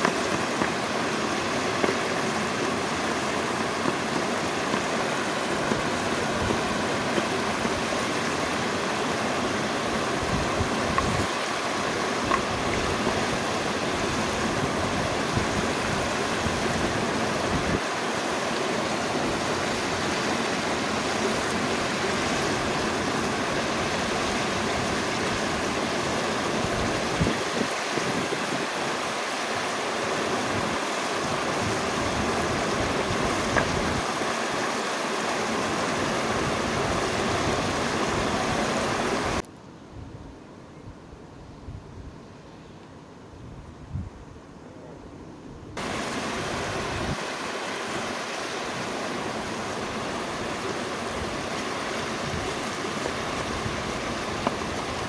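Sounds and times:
stream rushing over rocks: 0:00.0 - 0:39.4, 0:45.8 - 0:55.0.

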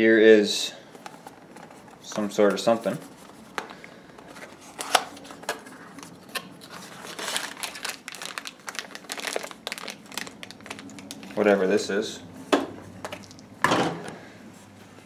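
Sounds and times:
plastic bag crinkling: 0:04.3 - 0:11.6.

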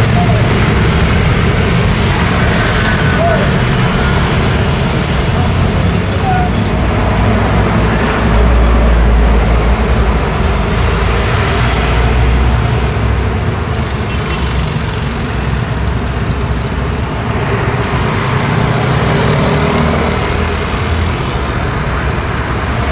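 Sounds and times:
cars and scooters passing: 0:00.0 - 0:22.9
heavy vehicle rumble: 0:00.0 - 0:22.9.

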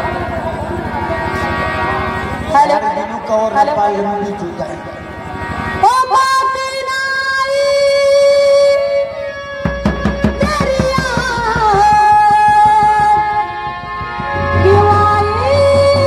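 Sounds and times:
woman singing: 0:05.8 - 0:09.3, 0:10.2 - 0:13.5, 0:14.6 - 0:16.0
drum rhythm: 0:09.5 - 0:16.0.

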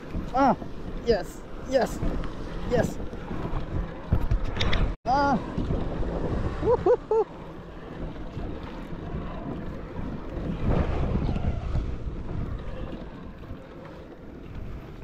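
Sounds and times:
wind buffeting microphone: 0:00.0 - 0:15.0
water washing around kayak: 0:05.1 - 0:15.0.

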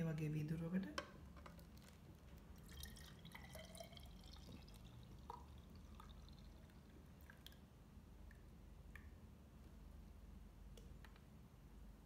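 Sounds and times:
soft drips: 0:01.4 - 0:09.8
thick drink pouring into glass: 0:01.6 - 0:07.5.

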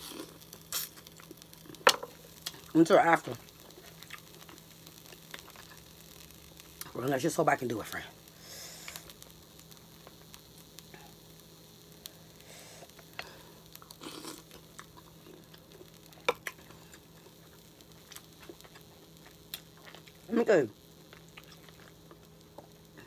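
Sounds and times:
mouth eating noises: 0:13.9 - 0:15.5.

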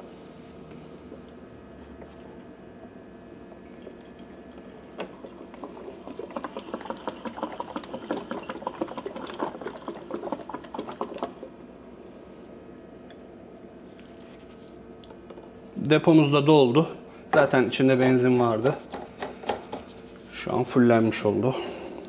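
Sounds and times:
fuel glugging into a tank: 0:03.6 - 0:11.6.

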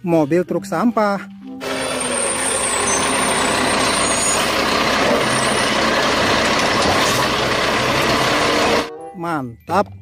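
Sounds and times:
heavy truck engine running: 0:01.6 - 0:08.9.

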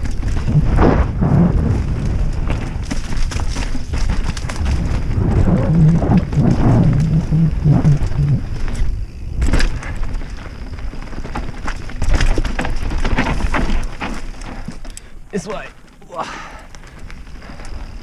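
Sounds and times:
bike rattling and knocking: 0:00.0 - 0:00.8, 0:01.4 - 0:15.1
wind rumble on microphone: 0:00.0 - 0:11.3
tyres crunching over dirt: 0:00.0 - 0:18.0.

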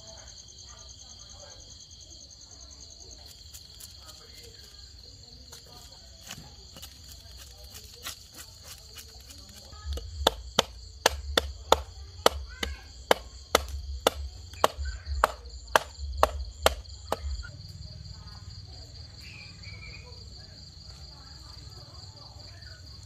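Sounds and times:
crickets chirring: 0:00.0 - 0:23.0
cleaver chopping on stone: 0:06.3 - 0:17.4.

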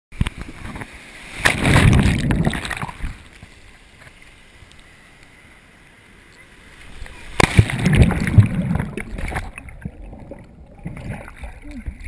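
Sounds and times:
surf washing: 0:00.2 - 0:12.0
churning water rushing: 0:00.4 - 0:04.5, 0:06.6 - 0:12.0.

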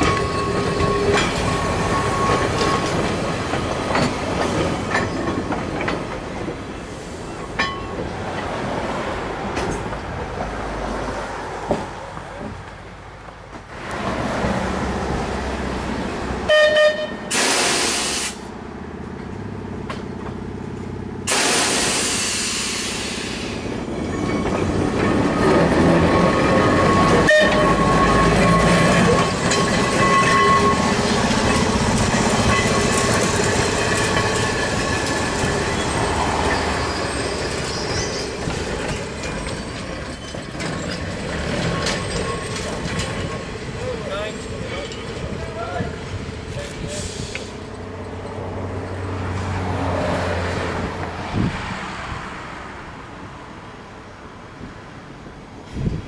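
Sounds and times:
wheel squeal: 0:00.0 - 0:03.6, 0:23.4 - 0:43.4
tram rumbling and rattling: 0:00.0 - 0:56.0
short loud horn blasts: 0:16.5 - 0:18.4, 0:27.2 - 0:27.9.

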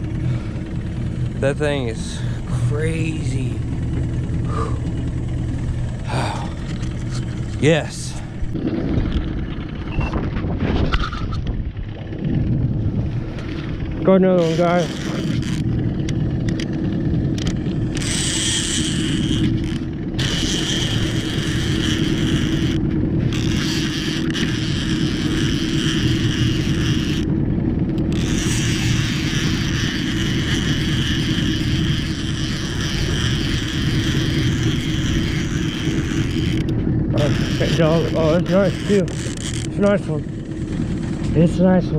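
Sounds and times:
fishing reel cranking: 0:00.0 - 0:10.1, 0:13.5 - 0:41.4
boat motor humming: 0:00.0 - 0:41.9.

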